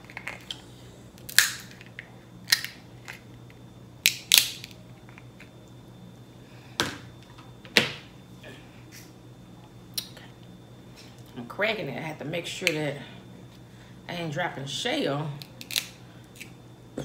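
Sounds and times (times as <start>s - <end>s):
shears cracking crab shell: 1.2s - 3.2s, 4.0s - 4.8s, 15.4s - 16.5s.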